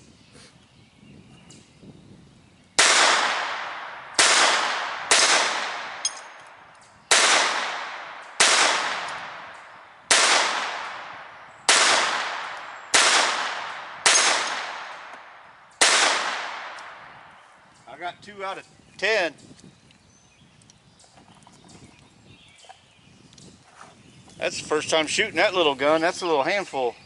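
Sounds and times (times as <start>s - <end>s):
bullet pinging steel target: 2.8s - 17.2s
pistol shots with echo: 2.8s - 17.3s.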